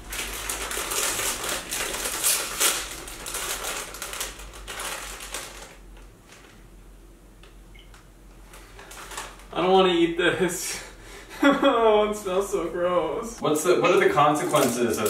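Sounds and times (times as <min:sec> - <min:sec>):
crisp bag crinkling: 0:00.0 - 0:06.6, 0:08.5 - 0:09.6, 0:14.0 - 0:15.0.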